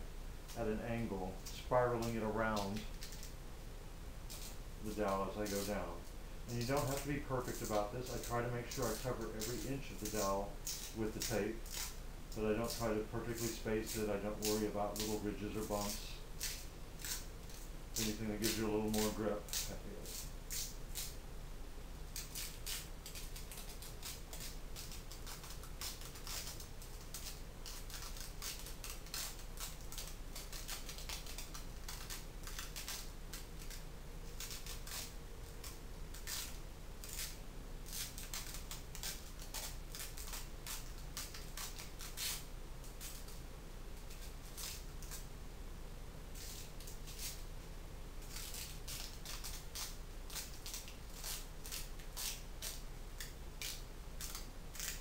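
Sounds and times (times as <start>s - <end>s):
tape peeling off roll: 4.3s - 21.2s, 22.1s - 43.4s, 46.3s - 47.4s, 48.2s - 55.0s.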